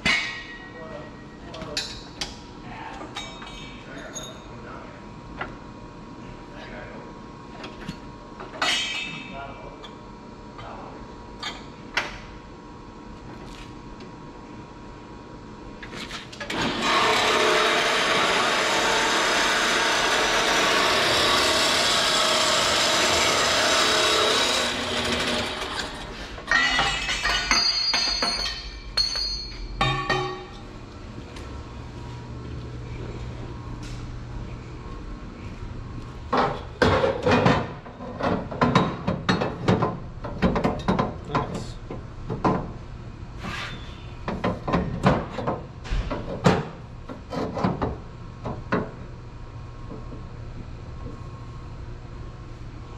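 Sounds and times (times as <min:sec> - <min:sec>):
power tool running: 0:16.5 - 0:26.3
metal clanks and knocks: 0:26.4 - 0:30.6.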